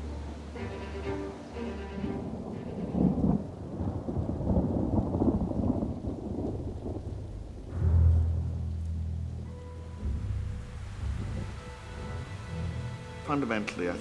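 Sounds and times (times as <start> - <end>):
rain: 0.0 - 14.0
thunder rumbling: 1.6 - 14.0.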